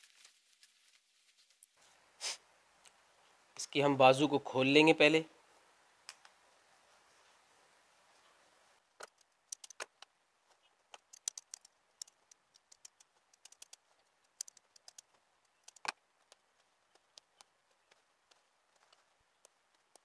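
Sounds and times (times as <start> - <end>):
stitches being snipped: 9.0 - 9.9, 10.9 - 17.5.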